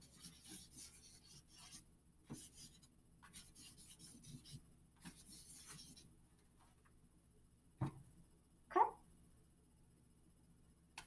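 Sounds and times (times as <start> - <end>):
marker scratching on paper: 0.0 - 6.1.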